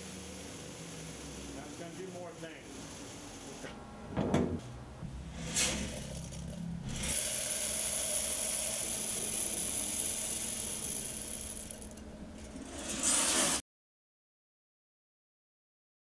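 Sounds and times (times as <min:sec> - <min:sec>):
coffee beans pouring into bowl: 0:05.4 - 0:12.0, 0:12.6 - 0:13.6.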